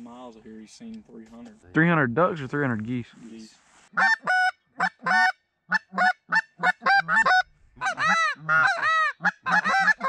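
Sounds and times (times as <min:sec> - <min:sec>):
goose call clucks: 0:04.0 - 0:10.0
goose call honks: 0:04.0 - 0:10.0.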